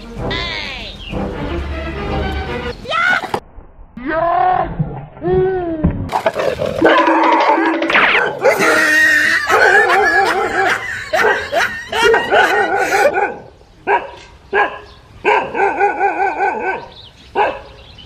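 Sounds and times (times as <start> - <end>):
dog barking: 9.5 - 17.8.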